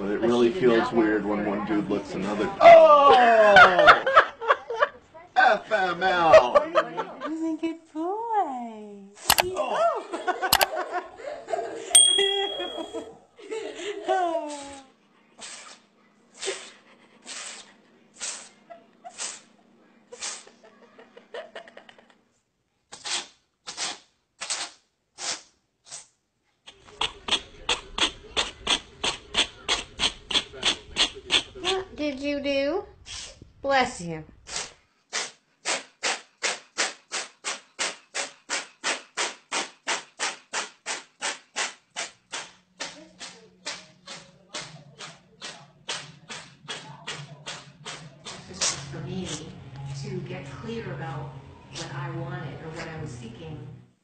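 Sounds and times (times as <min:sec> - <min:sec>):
cat sneezing: 0:17.3 - 0:19.5, 0:20.2 - 0:20.5.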